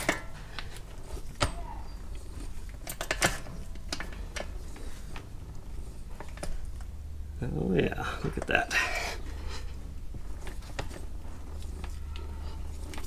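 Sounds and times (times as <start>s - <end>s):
metallic clinks and knocks: 0.0s - 4.6s
low steady hum: 0.0s - 13.0s.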